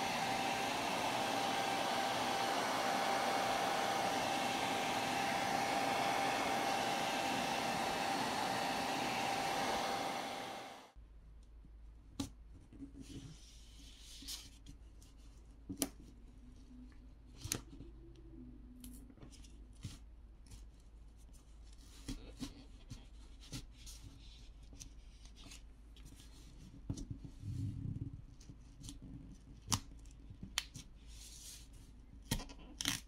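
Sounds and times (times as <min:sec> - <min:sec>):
hair dryer blowing: 0:00.0 - 0:11.0.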